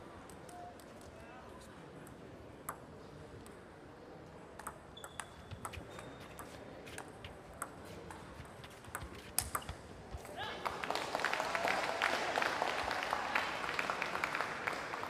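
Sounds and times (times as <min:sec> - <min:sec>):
table tennis ball clicking: 0:04.6 - 0:08.2.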